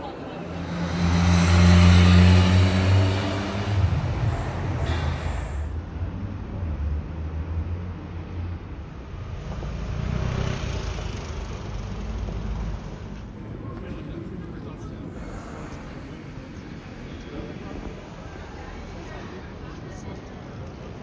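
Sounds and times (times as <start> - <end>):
city street traffic rumble: 0.0 - 21.0.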